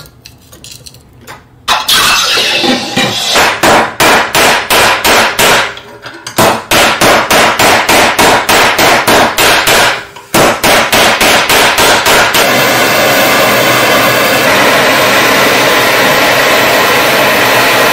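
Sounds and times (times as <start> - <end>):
hammer striking metal wire: 6.4 - 12.5.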